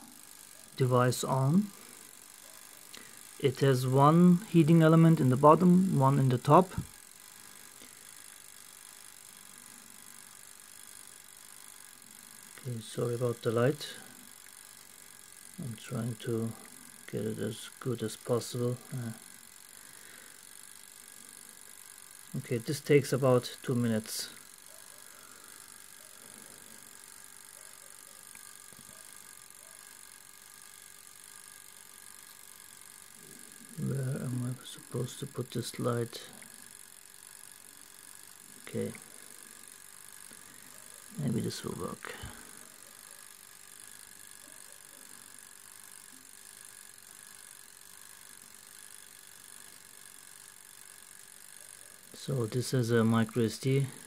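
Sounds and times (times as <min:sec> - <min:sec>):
toaster oven humming: 0:00.0 - 0:54.0.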